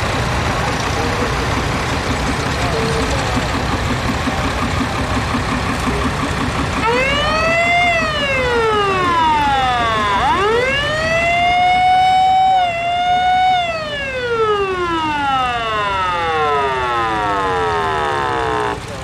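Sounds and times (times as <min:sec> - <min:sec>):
fire truck siren wailing: 0:06.6 - 0:19.0.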